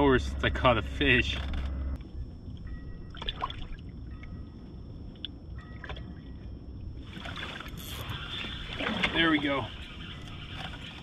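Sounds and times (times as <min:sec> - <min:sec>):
low steady rumble: 0:00.0 - 0:11.0
water lapping against boat hull: 0:07.0 - 0:11.0.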